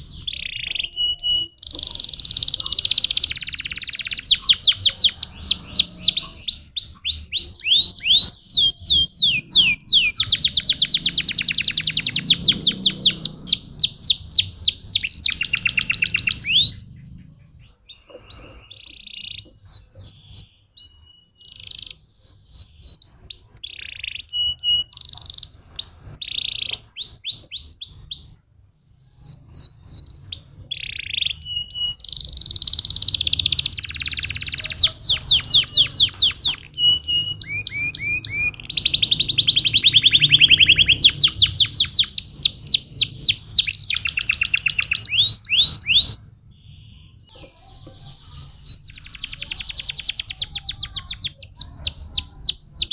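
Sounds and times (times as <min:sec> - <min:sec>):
canary singing: 0:00.0 - 0:52.9.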